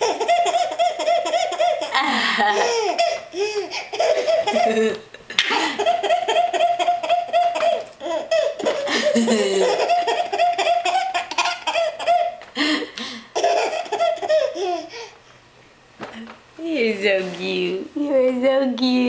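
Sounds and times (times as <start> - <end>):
baby laughing: 0.0 - 12.5, 13.3 - 15.2.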